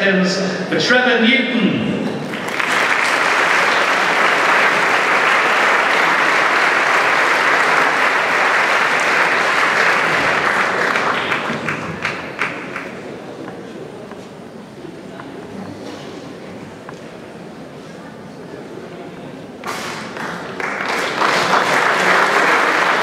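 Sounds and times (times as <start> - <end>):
audience applauding: 2.2 - 13.2, 19.7 - 23.0.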